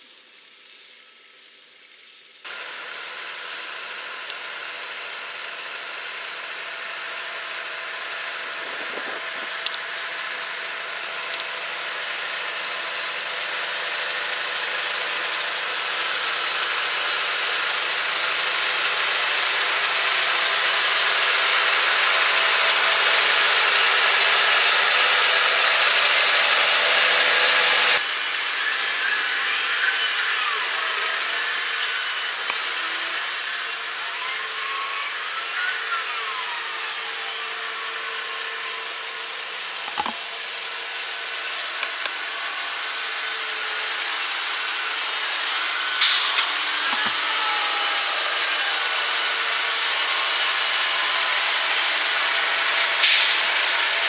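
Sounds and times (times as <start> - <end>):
tractor engine running: 2.4 - 28.2, 38.9 - 54.0
faint gliding whistles: 28.2 - 32.0.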